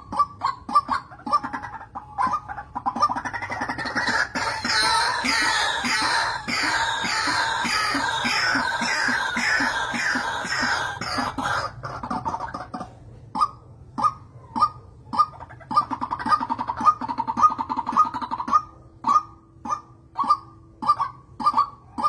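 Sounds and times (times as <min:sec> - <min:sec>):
waterhens calling: 0:00.0 - 0:22.0.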